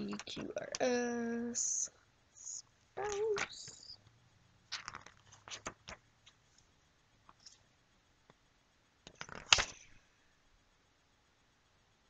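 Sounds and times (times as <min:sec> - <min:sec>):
book pages rustling: 0:04.7 - 0:06.7, 0:09.1 - 0:09.8.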